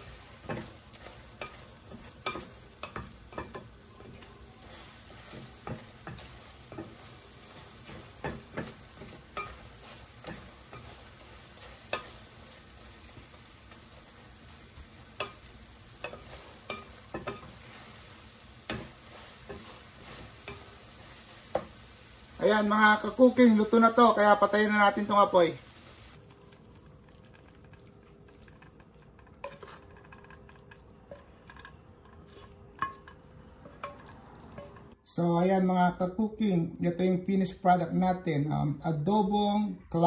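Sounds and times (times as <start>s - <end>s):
wooden spatula scraping a pan: 0.0s - 21.8s, 29.2s - 35.0s
clam meat sizzling in a pan: 0.0s - 35.0s.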